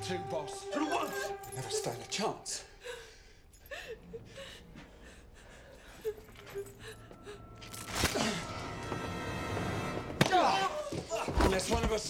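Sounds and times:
whimpering sounds: 0:00.0 - 0:07.5.

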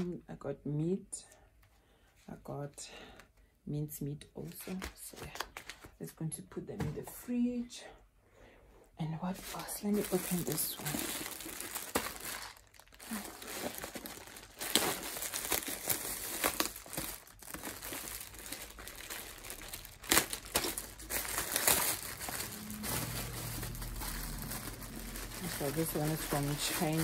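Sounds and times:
packaging crinkling and rustling: 0:04.5 - 0:06.0, 0:09.4 - 0:27.0.

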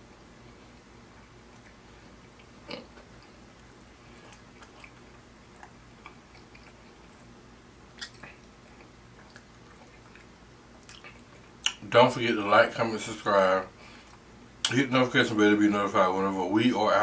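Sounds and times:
faint low hum: 0:00.0 - 0:17.0
mouth chewing clicks and smacks: 0:01.5 - 0:07.3, 0:07.9 - 0:11.8.

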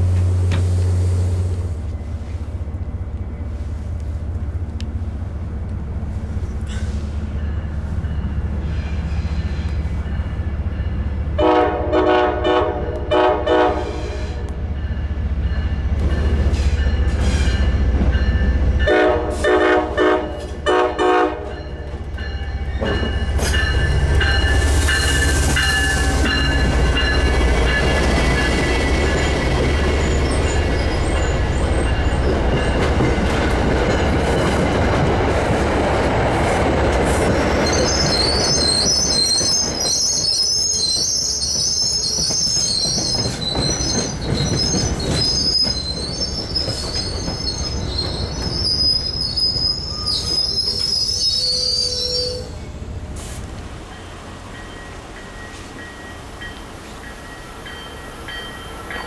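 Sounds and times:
diesel locomotive rumbling: 0:00.0 - 0:59.0
train horn short blasts: 0:11.4 - 0:14.5, 0:18.9 - 0:21.6, 0:51.5 - 0:52.6
train wheels clattering on rails: 0:21.5 - 0:51.1.

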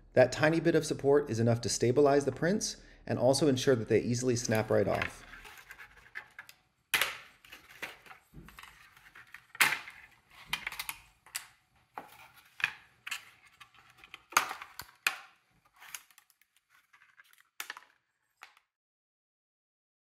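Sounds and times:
plastic parts clattering: 0:04.4 - 0:18.6.

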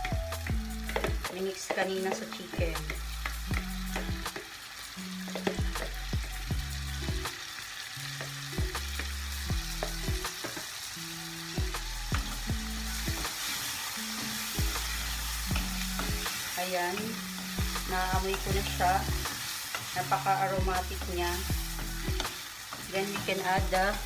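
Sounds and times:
chicken sizzling in frying pan: 0:00.0 - 0:24.0
spatula tapping bowl and pan: 0:00.8 - 0:04.5, 0:05.3 - 0:06.0, 0:09.0 - 0:10.7, 0:15.5 - 0:20.0, 0:20.6 - 0:23.7.

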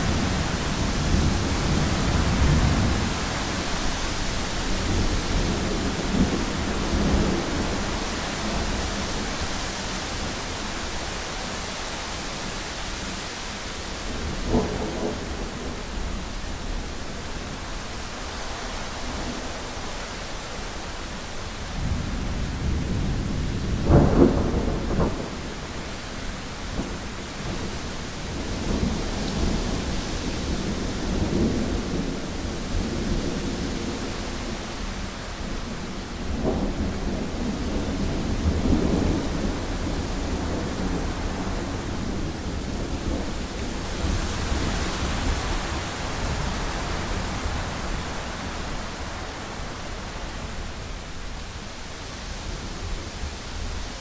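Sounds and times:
steady rain hiss: 0:00.0 - 0:54.0
wind: 0:00.0 - 0:54.0
rolling thunder: 0:21.8 - 0:50.6.

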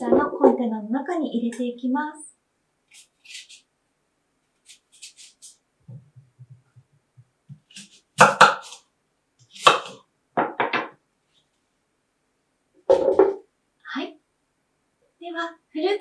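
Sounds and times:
knife cutting apple on wooden board: 0:02.9 - 0:03.7, 0:04.6 - 0:06.5, 0:07.5 - 0:10.0.

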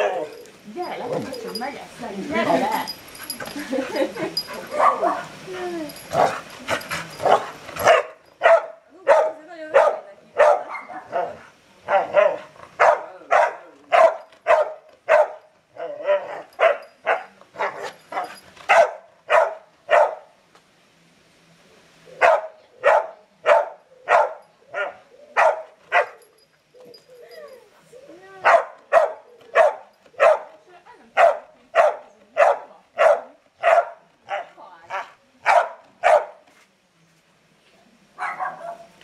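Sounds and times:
dog barking: 0:04.7 - 0:05.3, 0:07.2 - 0:15.4, 0:16.0 - 0:20.3, 0:22.2 - 0:26.2, 0:28.4 - 0:30.6, 0:31.2 - 0:36.4, 0:38.2 - 0:38.9.

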